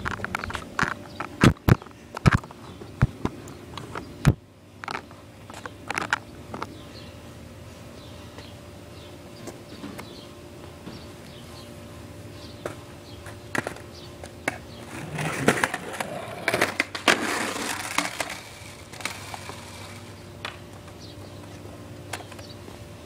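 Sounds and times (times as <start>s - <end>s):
skateboard wheels rumbling on concrete: 0.0s - 6.9s, 12.6s - 23.0s
skateboard clacks: 12.6s - 22.5s.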